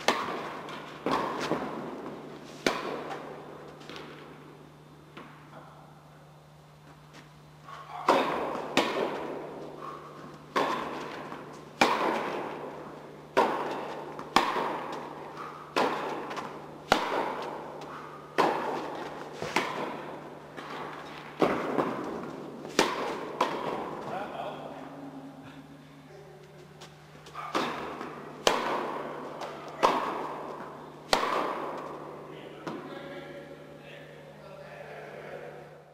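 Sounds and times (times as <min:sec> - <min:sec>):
tennis ball bouncing on court: 0:00.0 - 0:04.2, 0:08.0 - 0:09.6, 0:10.3 - 0:24.1, 0:27.2 - 0:32.0
tennis ball struck by rackets: 0:00.0 - 0:04.2, 0:07.8 - 0:24.1, 0:27.2 - 0:32.8.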